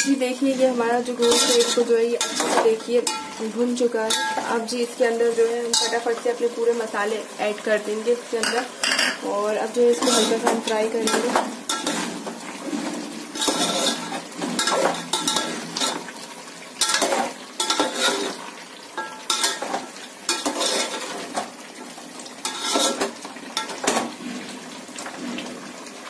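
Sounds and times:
meat sizzling: 0.0s - 26.0s
metal spoon scraping a pot: 1.1s - 3.4s, 4.1s - 4.5s, 8.4s - 9.2s, 9.8s - 16.1s, 16.8s - 21.5s, 22.4s - 24.0s.

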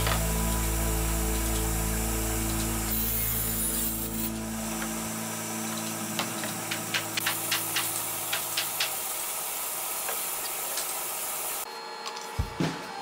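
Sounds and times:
table saw hiss and hum: 0.0s - 13.0s.

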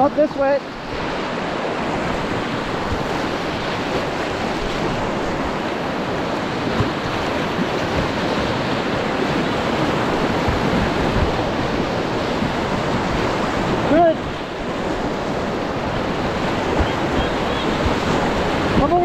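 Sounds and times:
white-water rapids rushing: 0.0s - 19.0s.

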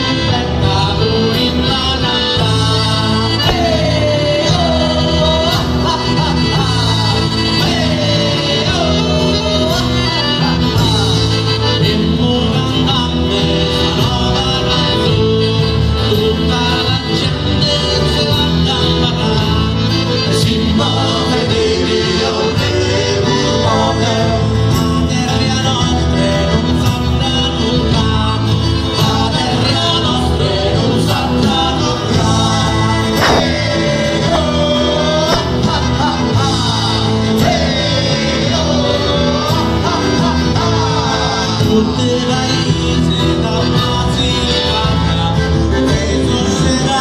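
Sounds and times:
accordion: 0.0s - 47.0s
guitar: 0.0s - 47.0s
man singing: 0.0s - 47.0s
drum kit: 0.7s - 11.4s, 31.1s - 47.0s.

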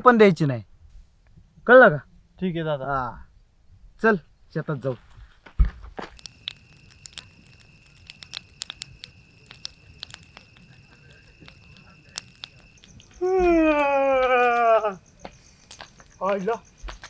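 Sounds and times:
bonfire crackling and popping: 4.8s - 17.0s
high insect trill: 6.0s - 17.0s.

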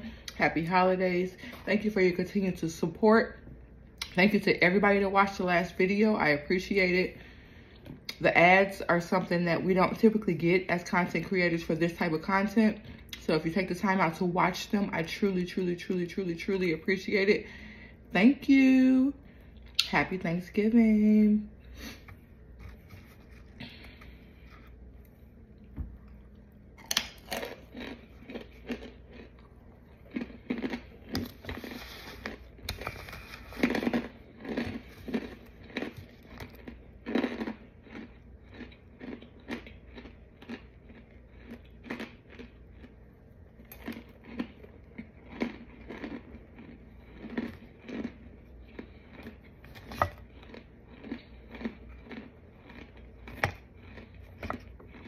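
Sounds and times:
person crunching and chewing: 22.5s - 55.0s.

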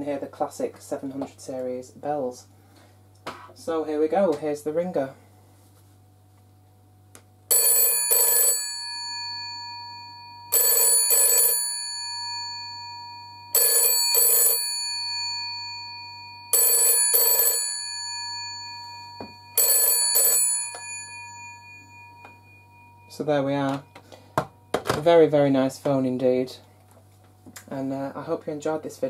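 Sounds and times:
telephone bell ringing: 7.5s - 24.4s.

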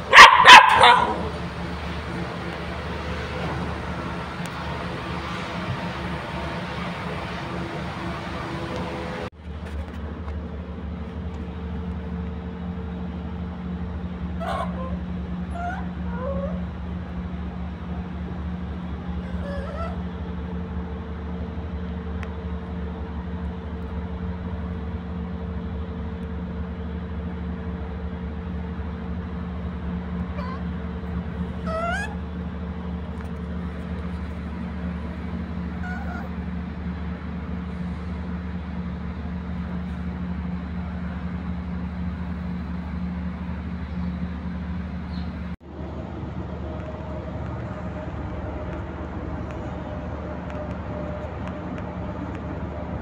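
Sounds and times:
low mechanical hum: 0.0s - 53.0s
animal squeal: 14.4s - 16.7s, 19.2s - 20.0s, 30.4s - 30.7s, 31.6s - 32.2s, 35.7s - 36.4s.

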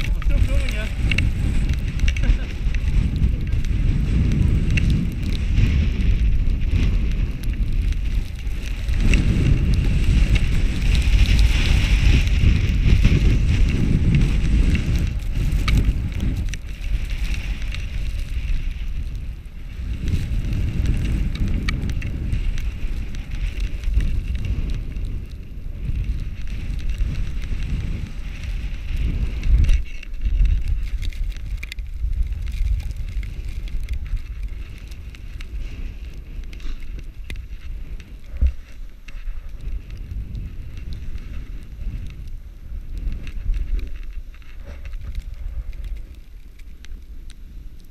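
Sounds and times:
snowboard scraping through snow: 0.0s - 46.3s
wind on microphone: 0.0s - 47.9s.

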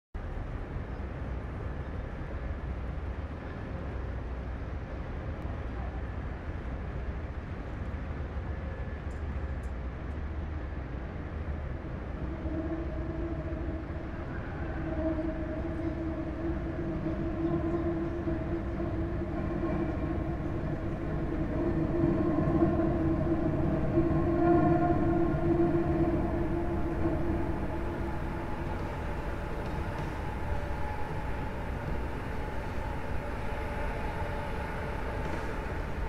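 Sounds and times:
low rumbling drone: 10.6s - 36.0s
long held pitched tone: 11.6s - 36.0s.

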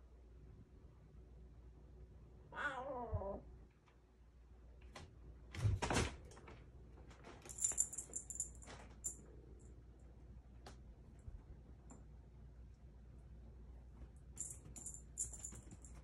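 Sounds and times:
kitten mewing: 2.5s - 3.4s.

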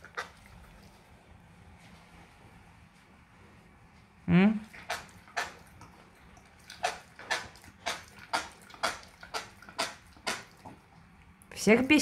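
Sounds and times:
pig grinding teeth: 0.0s - 1.0s, 4.7s - 10.9s
wet jaw smacking clicks: 6.6s - 10.7s.

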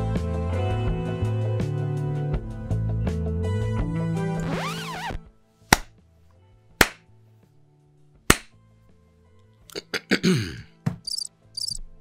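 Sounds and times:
hand claps: 5.7s - 6.0s, 6.8s - 7.1s, 8.3s - 8.6s.

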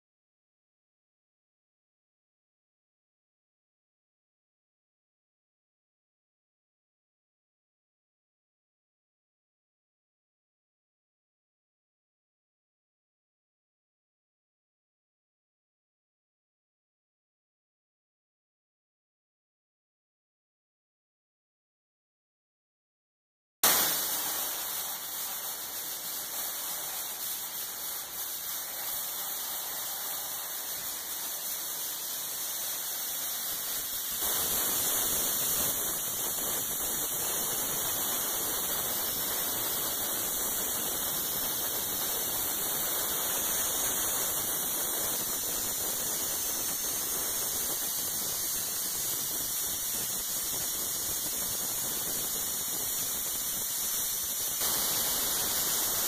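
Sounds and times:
blast nozzle hissing: 23.6s - 56.0s.

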